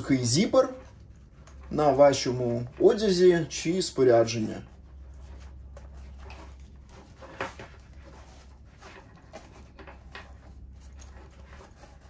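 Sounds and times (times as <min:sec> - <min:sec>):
low steady hum: 0:00.0 - 0:12.0
fabric pouch rustling: 0:04.6 - 0:12.0.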